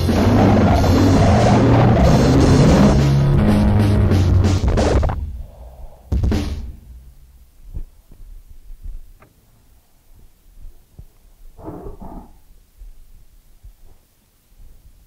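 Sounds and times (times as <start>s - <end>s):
short rough noise burst: 0.0s - 7.5s
loud crash: 0.0s - 7.6s
low thuds: 0.0s - 9.4s.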